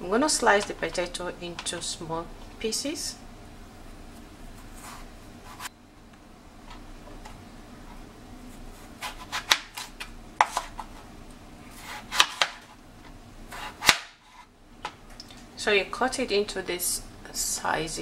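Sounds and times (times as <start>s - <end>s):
knife slicing potato: 8.5s - 11.1s, 11.7s - 12.7s, 13.5s - 14.5s.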